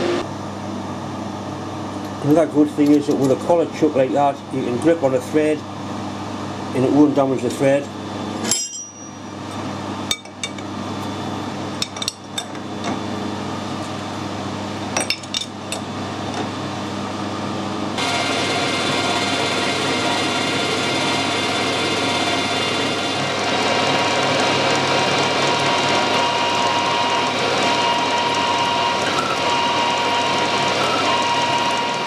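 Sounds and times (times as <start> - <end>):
metal lathe running: 18.0 - 32.0.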